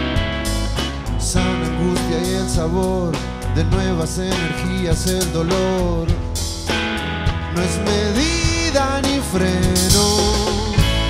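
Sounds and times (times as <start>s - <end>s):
rock band playing: 0.0s - 11.0s
man singing: 1.2s - 6.4s, 7.4s - 11.0s.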